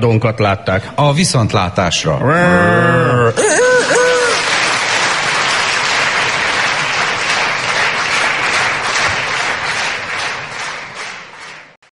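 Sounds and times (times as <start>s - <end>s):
audience applauding: 3.7s - 11.8s.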